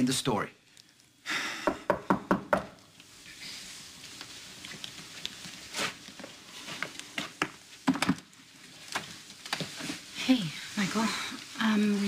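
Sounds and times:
soft footsteps: 0:04.0 - 0:07.8.

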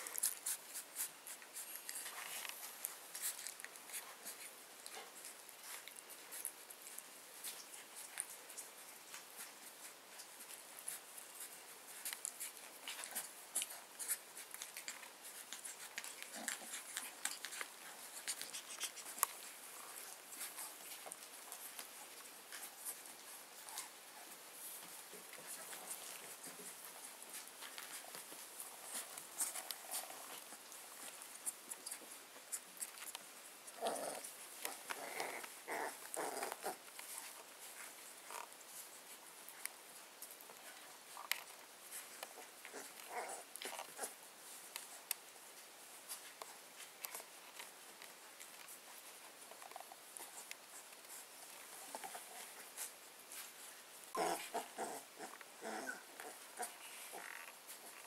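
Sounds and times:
puppy paws and claws clicking: 0:00.0 - 0:58.0
puppy grunt: 0:33.7 - 0:36.8, 0:42.4 - 0:44.2, 0:54.1 - 0:58.0.

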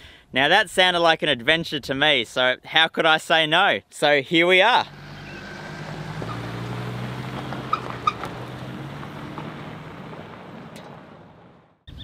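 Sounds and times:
pickup truck engine running: 0:04.9 - 0:11.7.

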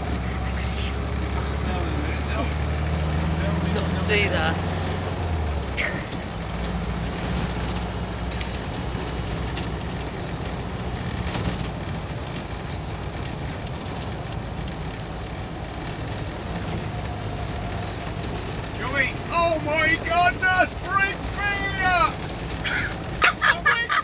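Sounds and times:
road noise: 0:00.0 - 0:24.0
van engine running: 0:00.0 - 0:24.0
small rattles: 0:05.8 - 0:19.6.

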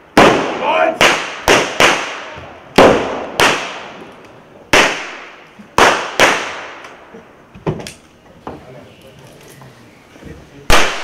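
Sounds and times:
blank gunshots echoing: 0:00.1 - 0:04.0, 0:04.7 - 0:06.8, 0:10.7 - 0:11.0.

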